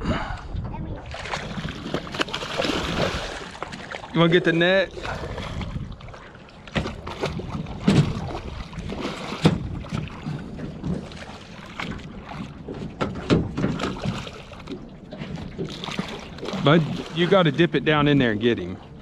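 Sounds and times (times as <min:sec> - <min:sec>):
wind and water rushing: 0:00.0 - 0:19.0
knocks and bumps on boat hull: 0:06.7 - 0:16.0.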